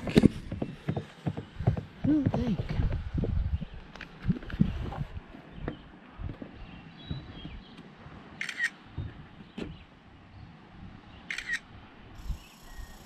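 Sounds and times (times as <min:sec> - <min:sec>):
soft footsteps on trail: 0:00.0 - 0:10.0
camera shutter clicks: 0:08.4 - 0:08.8, 0:11.3 - 0:11.6.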